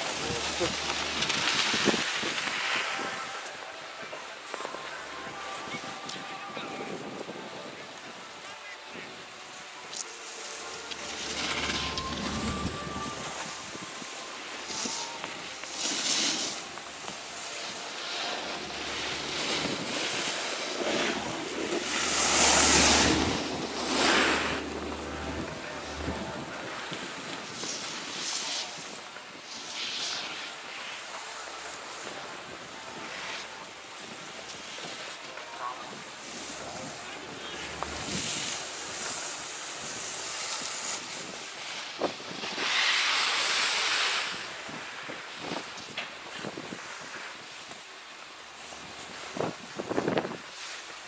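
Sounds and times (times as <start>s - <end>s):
wind rumble on microphone: 0.0s - 3.3s, 11.2s - 15.1s, 18.4s - 29.5s, 35.8s - 42.8s, 44.2s - 47.7s, 48.6s - 50.6s
skis scraping over snow: 0.0s - 8.2s, 8.9s - 51.0s.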